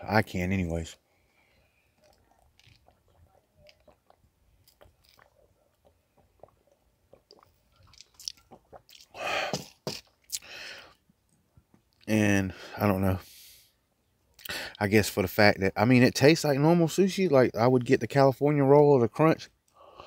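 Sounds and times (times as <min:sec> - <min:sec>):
mouth clicks and swallows: 0:02.0 - 0:12.1
breathy exhales: 0:09.2 - 0:09.7, 0:10.4 - 0:11.0.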